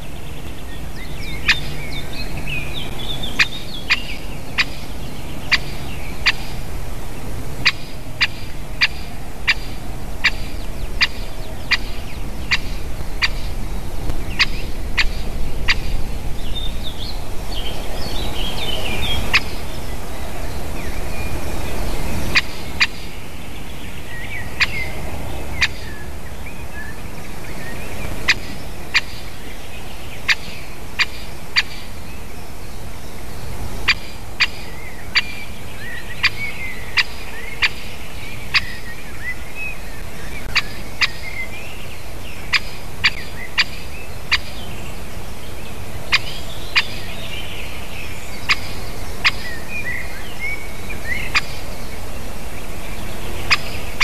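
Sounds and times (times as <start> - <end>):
woodpecker sharp call notes: 0.0 - 6.6, 7.6 - 13.6, 14.3 - 16.0, 22.3 - 23.2, 28.2 - 29.4, 33.9 - 39.4, 40.0 - 41.6, 42.4 - 44.6, 53.4 - 54.0
small birds twittering: 0.0 - 54.0.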